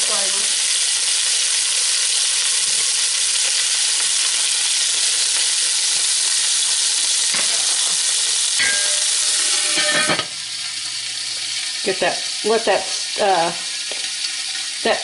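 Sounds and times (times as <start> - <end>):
beef sizzling in hot oil: 0.0 - 15.0
ringing clink: 8.6 - 10.2.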